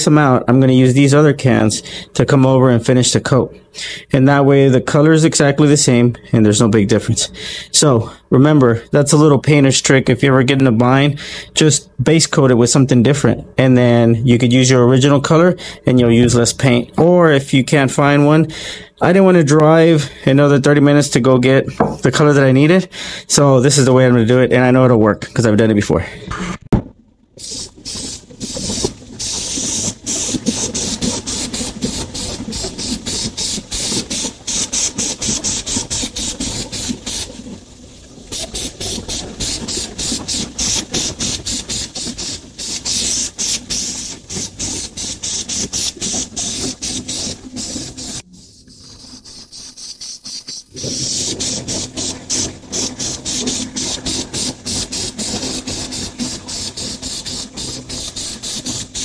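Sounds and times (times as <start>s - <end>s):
aerosol spray can hissing: 27.4s - 37.4s, 38.3s - 59.0s.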